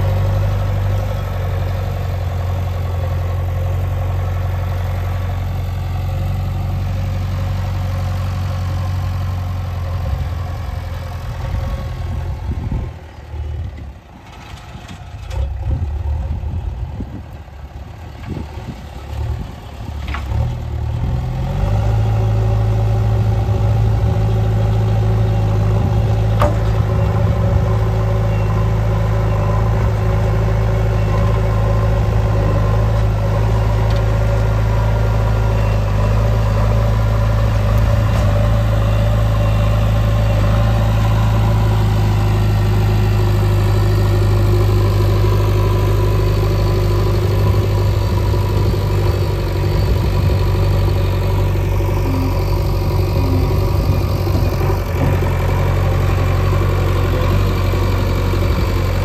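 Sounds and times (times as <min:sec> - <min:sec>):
diesel engine under load: 0:00.0 - 0:59.0.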